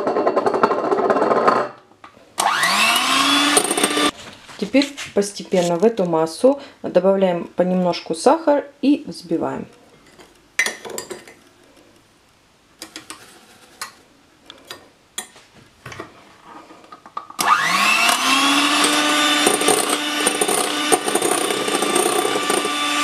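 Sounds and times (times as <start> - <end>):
electric hand mixer whine: 2.4 - 4.1, 17.4 - 23.0.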